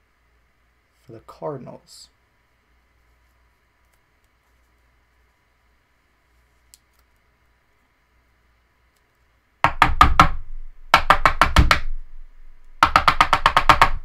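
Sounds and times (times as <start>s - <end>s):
rapid knocking: 9.6s - 11.9s, 12.8s - 14.0s.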